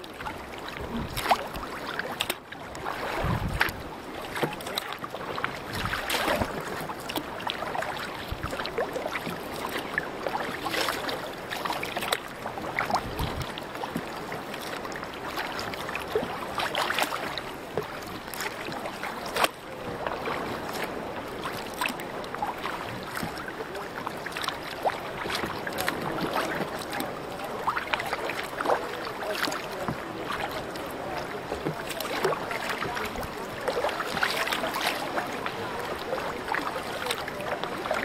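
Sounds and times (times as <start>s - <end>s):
paddles splashing in water: 0.0s - 38.0s
wind on microphone: 0.7s - 1.8s, 2.8s - 4.2s, 5.6s - 6.7s, 12.7s - 14.1s.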